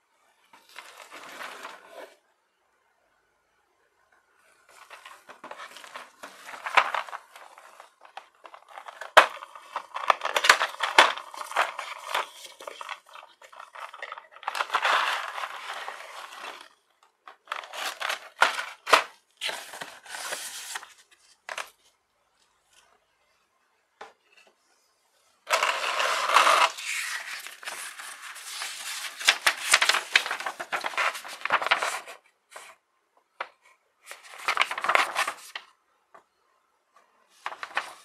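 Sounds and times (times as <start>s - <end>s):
cardboard box and plastic crinkling: 4.7s - 16.7s, 17.3s - 21.8s, 25.5s - 32.7s, 34.1s - 35.7s, 37.4s - 38.0s.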